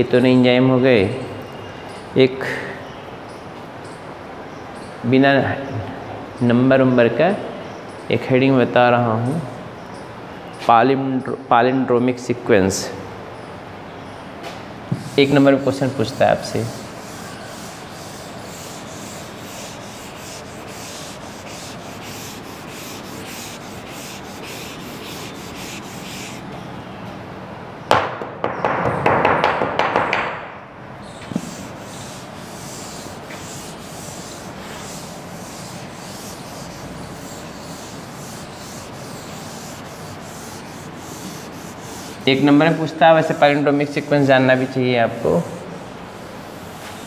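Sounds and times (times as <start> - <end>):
duster wiping blackboard: 14.9 - 26.4, 31.2 - 43.4, 44.0 - 47.0.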